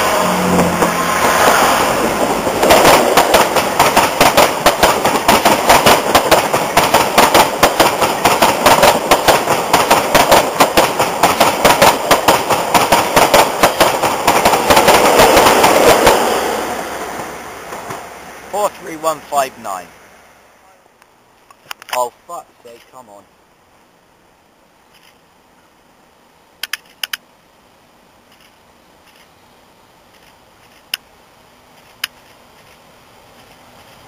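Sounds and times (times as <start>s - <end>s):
train rush of air and rolling noise: 0.0s - 34.0s
train wheels clattering over rail joints: 0.6s - 16.3s.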